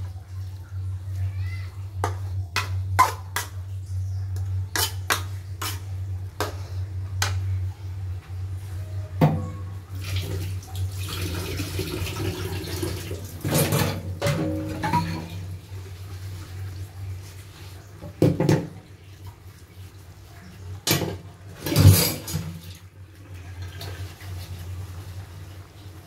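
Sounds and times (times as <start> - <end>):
low steady hum: 0.0 - 26.0
ladle clanking down: 13.4 - 15.4.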